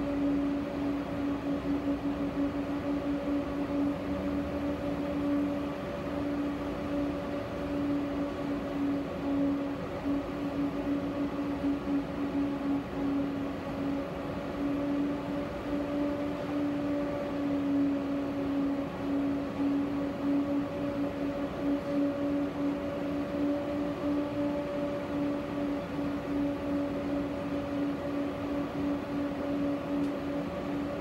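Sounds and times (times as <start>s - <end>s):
steady hum: 0.0s - 31.0s.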